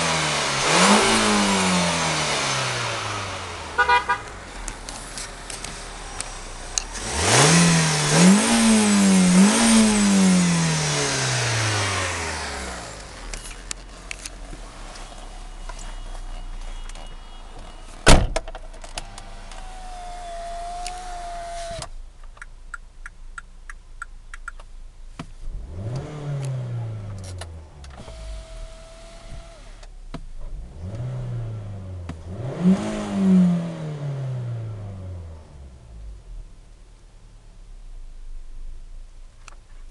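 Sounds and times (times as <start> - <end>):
car engine idling and revving: 0.0 - 39.9.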